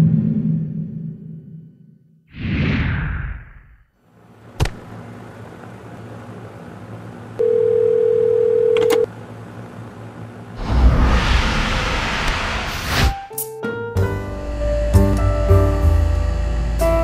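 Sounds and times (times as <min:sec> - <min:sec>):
telephone dial tone: 0:07.4 - 0:09.1
handset clicks: 0:08.7 - 0:09.1.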